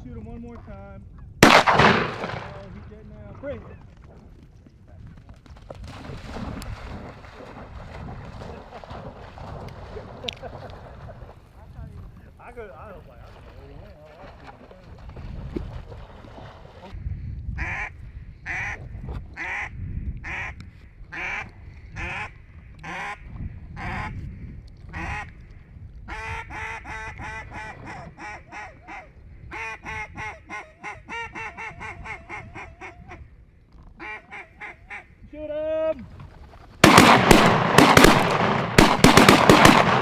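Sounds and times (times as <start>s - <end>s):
wind rumbling on microphone: 0.0s - 40.0s
goose honking and clucking: 26.1s - 33.2s.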